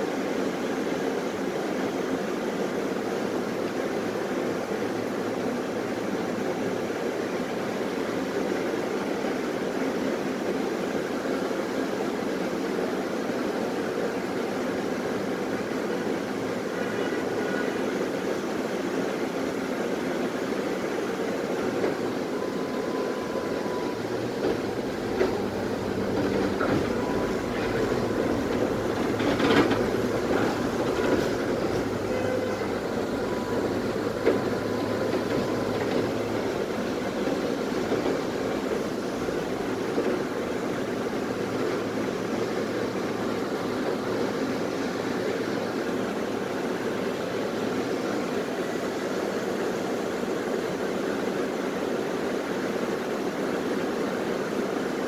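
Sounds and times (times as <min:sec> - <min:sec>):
tram running rumble: 0:00.0 - 0:55.0
tram wheels knocking on track: 0:24.0 - 0:45.8.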